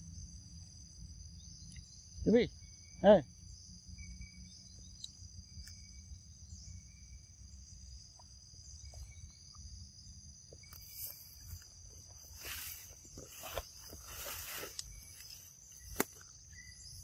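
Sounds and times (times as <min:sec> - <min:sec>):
insects chirring: 0:00.0 - 0:17.0
soft rustles: 0:10.8 - 0:15.5.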